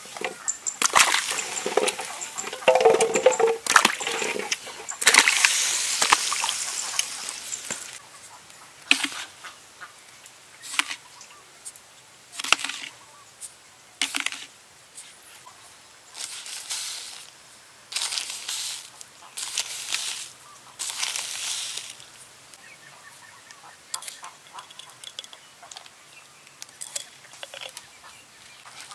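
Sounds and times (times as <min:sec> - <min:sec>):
vegetables splashing into water: 0:00.2 - 0:08.0.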